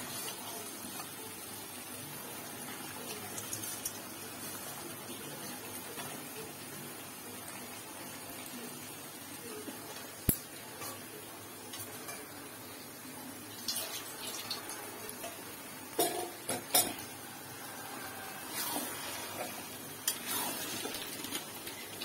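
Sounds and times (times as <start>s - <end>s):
spatula scraping pan: 17.7s - 21.4s.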